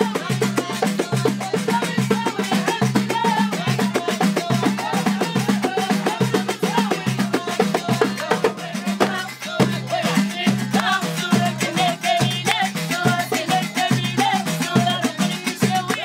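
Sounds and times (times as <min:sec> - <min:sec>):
frame drums: 0:00.0 - 0:16.0
goblet drum: 0:00.0 - 0:16.0
women singing: 0:00.0 - 0:16.0
fast handclaps: 0:10.8 - 0:11.0, 0:12.5 - 0:12.7.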